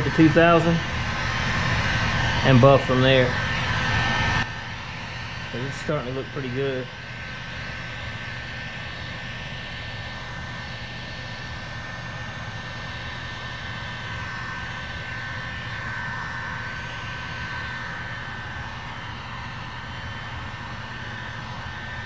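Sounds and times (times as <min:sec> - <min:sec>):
heat gun fan whining: 0:00.0 - 0:22.0.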